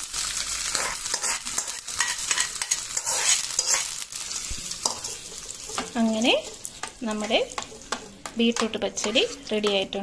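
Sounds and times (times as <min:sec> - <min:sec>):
oil sizzling: 0:00.0 - 0:10.0
metal spoon scraping steel pan: 0:00.7 - 0:04.0, 0:08.8 - 0:10.0.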